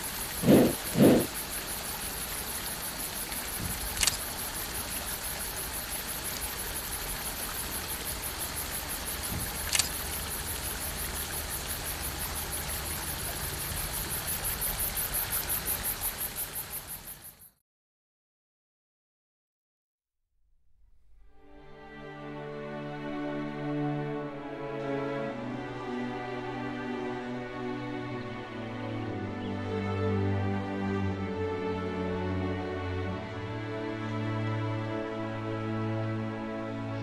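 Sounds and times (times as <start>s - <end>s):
insects chirring: 0.0s - 17.6s
sharp clicks: 3.6s - 4.3s, 9.4s - 10.0s.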